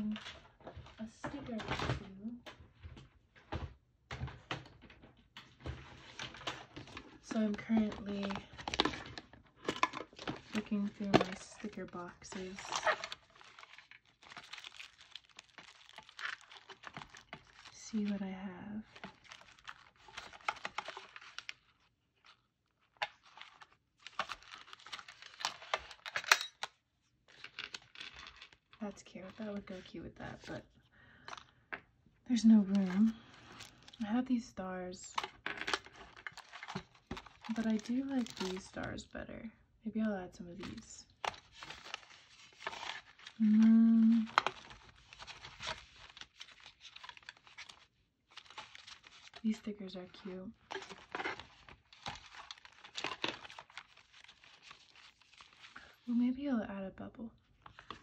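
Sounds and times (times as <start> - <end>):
sticker sheets crinkling: 5.4 - 26.7, 27.3 - 30.6, 35.1 - 39.1, 40.5 - 56.1, 57.6 - 58.0.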